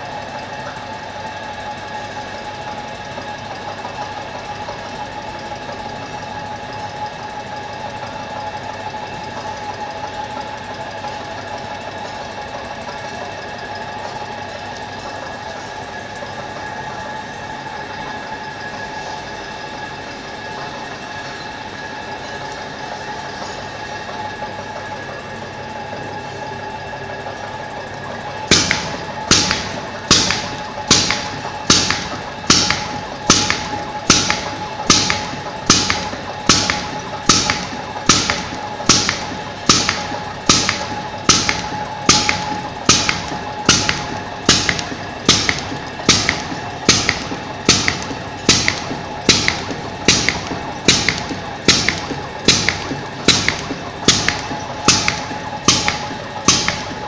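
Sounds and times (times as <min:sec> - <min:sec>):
machine hum: 0:00.0 - 0:57.0
pneumatic cutter clacking: 0:27.9 - 0:57.0.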